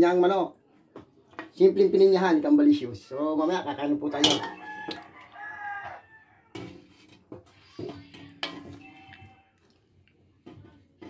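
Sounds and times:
wooden ladle knocking on wok: 0:04.2 - 0:04.6.

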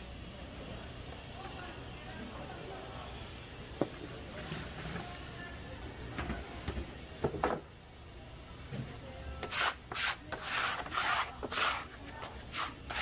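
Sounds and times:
rubbing or scraping strokes: 0:09.4 - 0:13.0.

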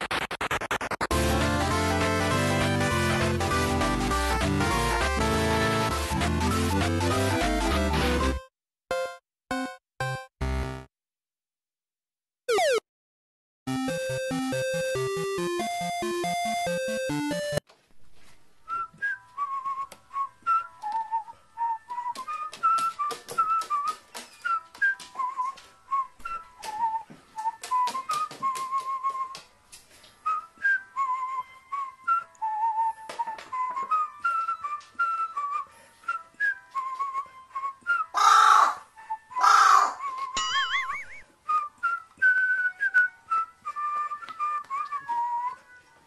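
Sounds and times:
whistled tune in background music: 0:14.2 - 0:17.6, 0:18.7 - 0:29.5, 0:30.1 - 0:38.2, 0:38.8 - 0:46.0
crow cawing: 0:38.2 - 0:40.0.

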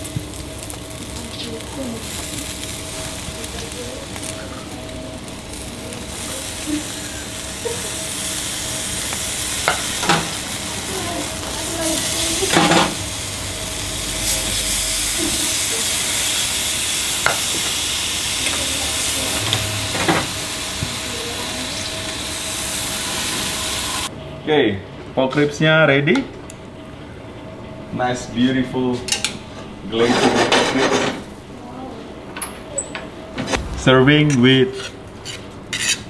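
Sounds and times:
ribs sizzling on a grill: 0:00.0 - 0:24.1.

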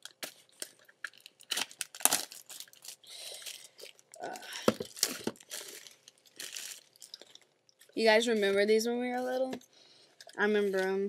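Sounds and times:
plastic wrapping crinkling and tearing: 0:00.0 - 0:08.5.

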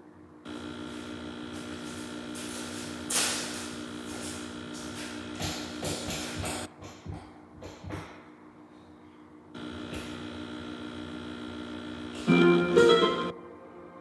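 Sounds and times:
electrical hum: 0:00.5 - 0:06.7, 0:09.6 - 0:13.3.

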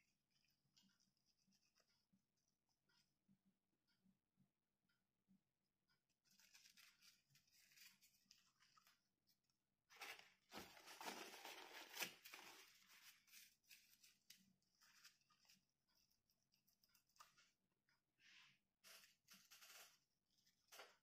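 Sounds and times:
tissue rustling and scraping: 0:09.9 - 0:15.6.

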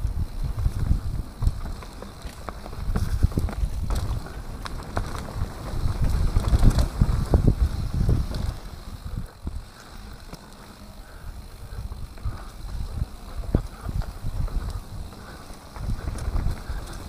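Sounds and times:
mountain bike rumble and clatter: 0:00.0 - 0:17.0
wind buffeting microphone: 0:00.0 - 0:17.0
wheels knocking over bumps: 0:00.5 - 0:17.0.

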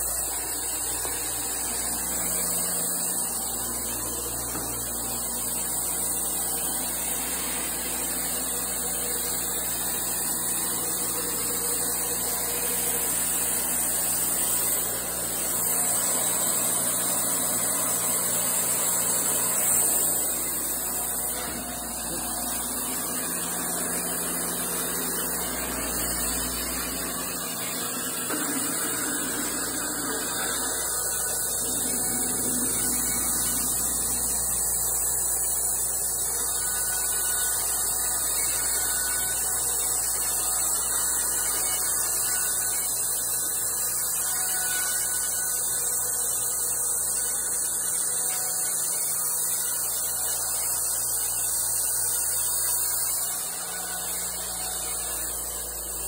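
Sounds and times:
band sawmill sawing log: 0:00.0 - 0:35.6.

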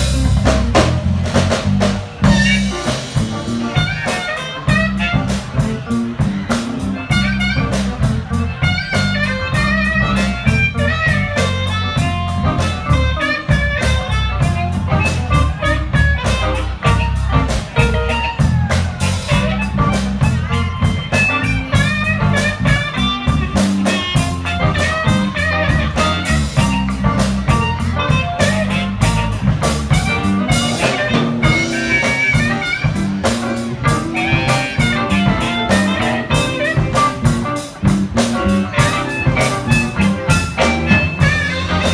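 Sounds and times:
blues band playing: 0:00.0 - 0:41.9
harmonica solo: 0:30.0 - 0:41.9.

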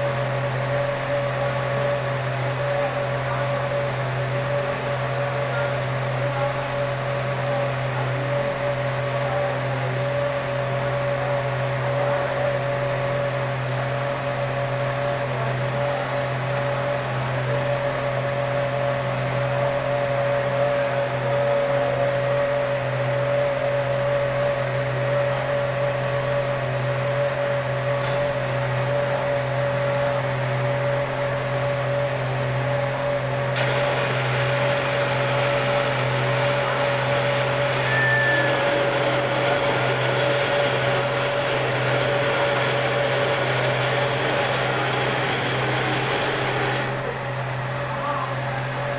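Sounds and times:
lathe motor hum with whine: 0:00.0 - 0:48.9.

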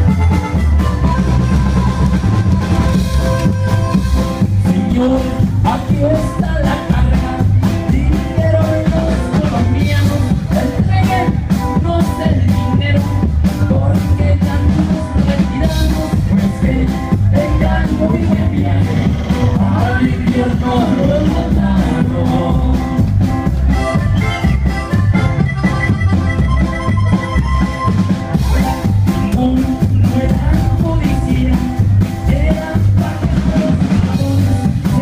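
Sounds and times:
drum kit beat: 0:00.0 - 0:35.0
electric guitar: 0:00.0 - 0:35.0
heavy bass: 0:00.0 - 0:35.0
man singing: 0:04.1 - 0:24.8, 0:28.3 - 0:35.0.

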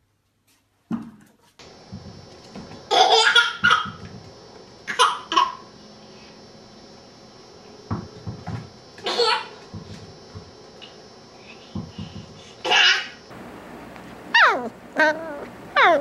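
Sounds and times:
baby laughing: 0:02.9 - 0:04.0.

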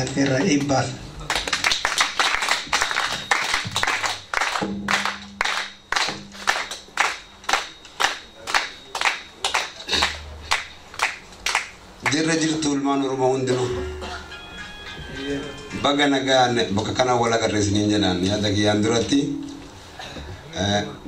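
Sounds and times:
rhythmic hand-clapping: 0:00.0 - 0:12.7
audience applause: 0:01.3 - 0:12.2.

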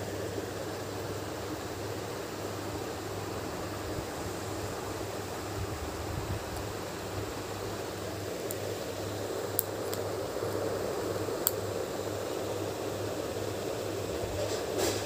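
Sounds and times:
background whir: 0:00.0 - 0:15.0.

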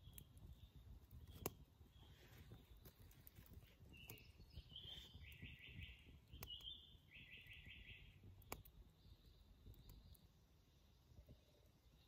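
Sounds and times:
songbird singing faintly: 0:00.0 - 0:12.0
wood fire crackling: 0:00.0 - 0:12.0.

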